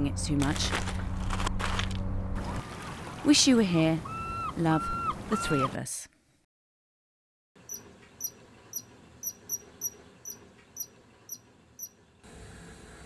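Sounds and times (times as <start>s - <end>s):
high short chirps: 7.7s - 11.9s.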